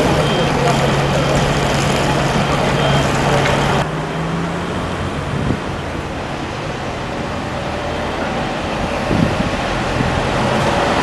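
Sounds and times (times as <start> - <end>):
road traffic: 0.0 - 11.0
vehicle engine humming: 0.0 - 11.0.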